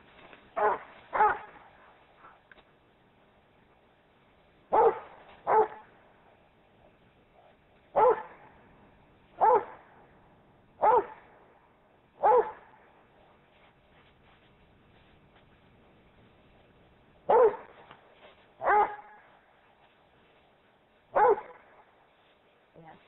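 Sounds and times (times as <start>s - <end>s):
dog barking: 0.6s - 1.7s, 4.7s - 5.9s, 7.9s - 8.4s, 9.4s - 9.9s, 10.8s - 11.3s, 12.2s - 12.8s, 17.3s - 17.8s, 18.6s - 19.2s, 21.1s - 21.7s.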